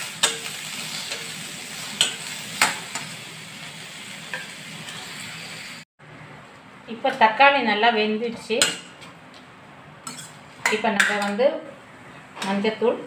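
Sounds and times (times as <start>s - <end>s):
vegetables sizzling in oil: 0.0s - 5.9s.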